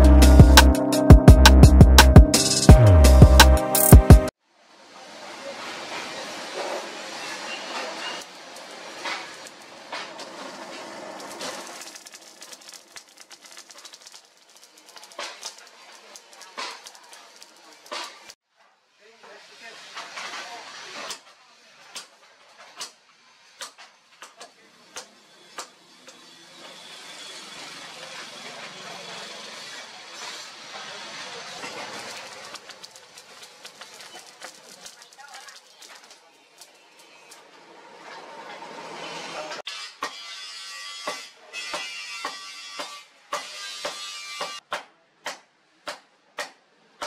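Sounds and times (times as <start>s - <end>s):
coals crackling and popping: 8.4s - 18.4s, 31.6s - 37.5s.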